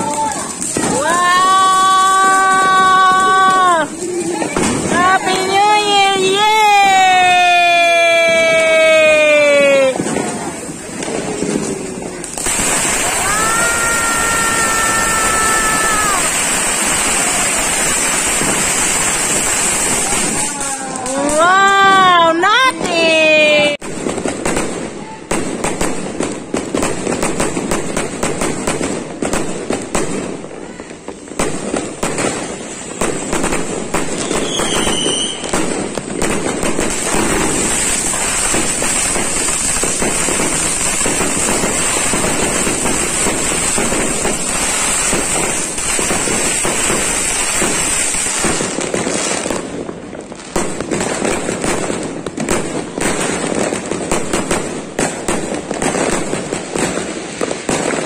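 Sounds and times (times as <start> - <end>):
fireworks crackling and popping: 0.0 - 58.0
falling whistle: 34.4 - 35.4.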